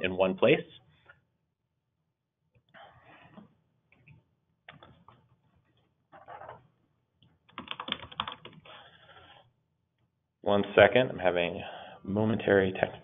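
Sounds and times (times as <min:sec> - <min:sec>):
keyboard typing and clicking: 0:07.5 - 0:08.7.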